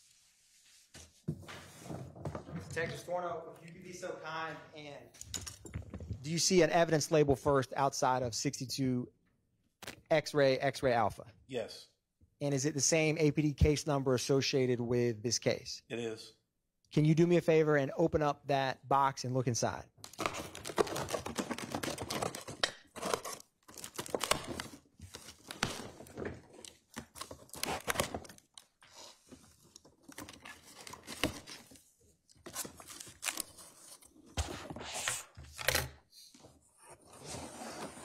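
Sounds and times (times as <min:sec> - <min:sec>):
tape tearing: 0:20.0 - 0:29.2
cardboard and packaging rustling: 0:20.1 - 0:35.6.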